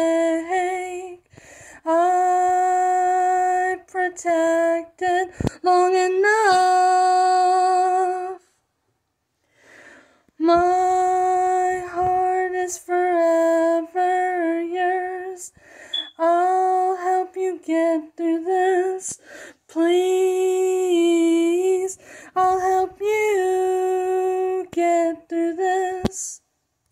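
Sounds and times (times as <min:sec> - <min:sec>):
woman singing unaccompanied: 0:00.0 - 0:08.4, 0:10.4 - 0:26.4.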